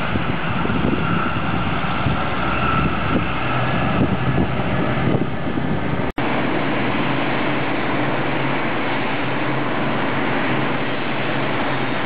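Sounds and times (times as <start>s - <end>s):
trucks driving past: 0.0s - 12.0s.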